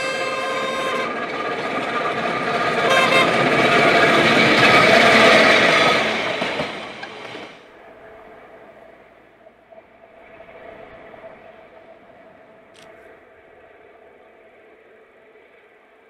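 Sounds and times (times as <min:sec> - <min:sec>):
locomotive passing on rails: 0:00.0 - 0:16.0
horn toot: 0:02.8 - 0:03.5.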